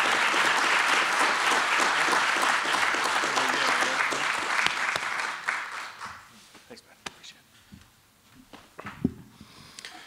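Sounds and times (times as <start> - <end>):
people applauding: 0.0 - 6.3.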